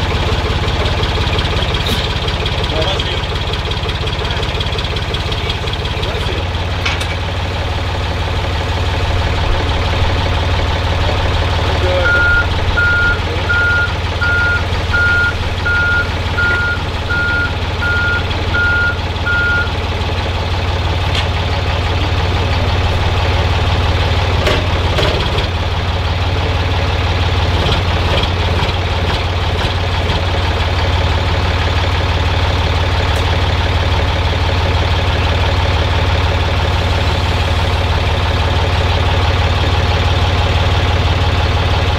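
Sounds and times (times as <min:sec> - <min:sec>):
truck engine idling: 0:00.0 - 0:41.9
metal clanks: 0:06.8 - 0:07.3
reversing alarm beeping: 0:12.0 - 0:19.8.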